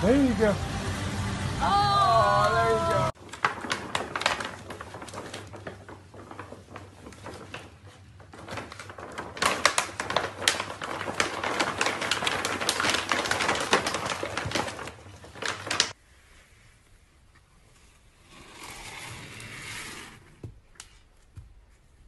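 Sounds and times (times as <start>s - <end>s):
pet food bag crinkling: 3.2s - 16.0s.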